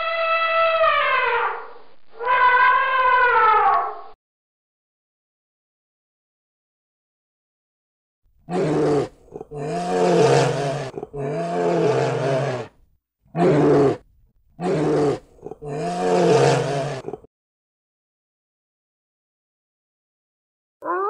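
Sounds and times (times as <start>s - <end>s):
bear roaring: 8.5s - 14.0s, 14.6s - 17.3s.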